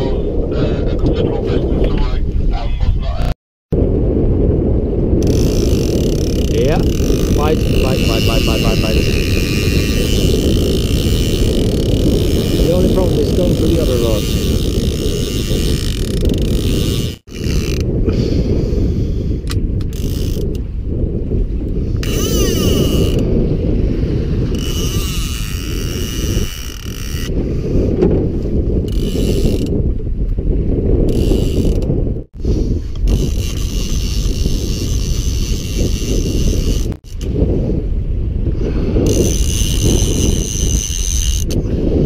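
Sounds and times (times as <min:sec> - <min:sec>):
wind buffeting microphone: 0:00.0 - 0:42.0
mechanical ratcheting: 0:05.2 - 0:17.8, 0:19.9 - 0:20.6, 0:22.0 - 0:23.2, 0:24.5 - 0:27.3, 0:33.0 - 0:37.3, 0:39.0 - 0:41.6.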